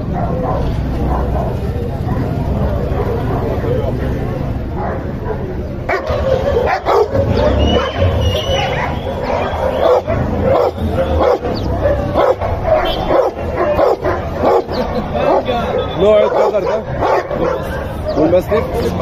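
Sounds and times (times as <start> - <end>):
dogs barking and yipping: 0.0 - 19.0
dog whining: 5.4 - 16.0.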